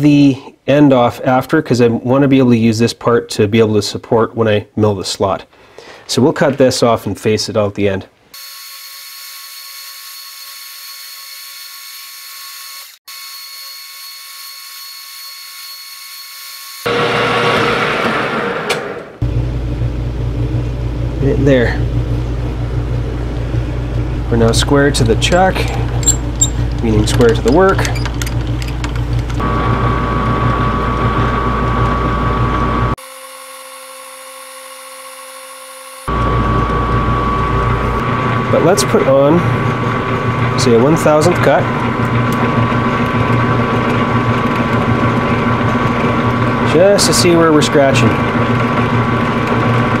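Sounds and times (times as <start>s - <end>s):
cutting tool grinding shaft: 8.4s - 17.9s, 24.4s - 29.6s, 32.9s - 50.0s
metal lathe whining: 24.3s - 50.0s.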